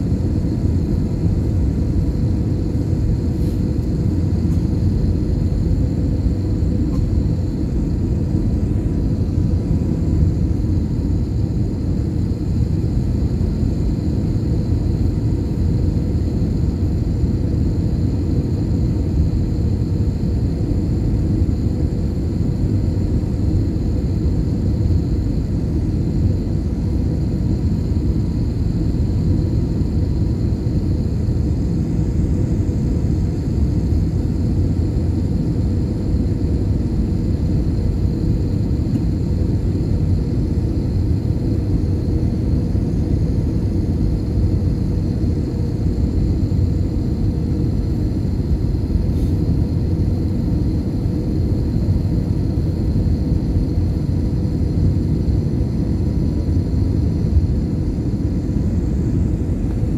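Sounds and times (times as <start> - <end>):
faint steady whine: 0.0 - 59.9
jet engine and airflow rumble: 0.0 - 59.9.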